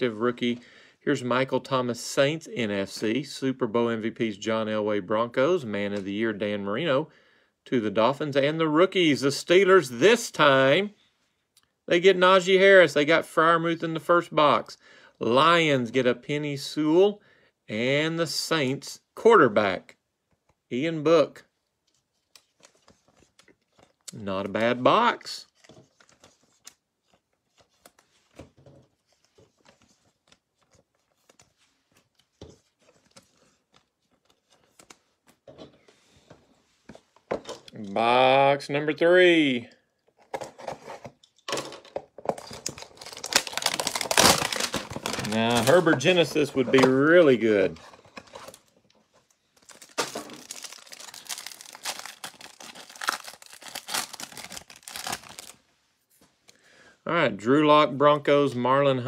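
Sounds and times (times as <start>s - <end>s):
cards rustling: 21.8s - 37.9s, 40.1s - 55.6s
plastic wrapper tearing and crinkling: 42.3s - 49.0s, 49.6s - 55.6s.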